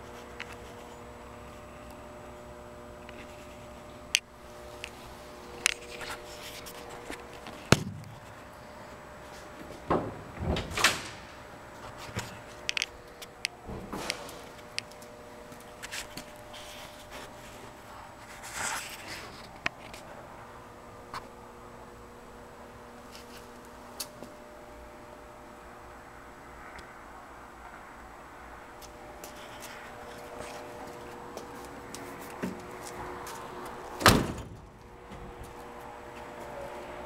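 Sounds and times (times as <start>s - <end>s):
faint steady hum: 0.0s - 37.0s
knocks and scuffs on car body: 7.7s - 8.3s.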